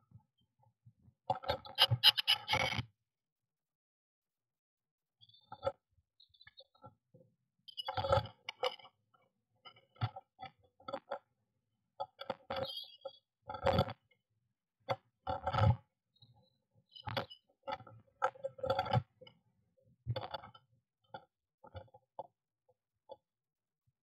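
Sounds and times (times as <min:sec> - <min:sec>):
bird scratching on wooden box: 0:01.8 - 0:02.7.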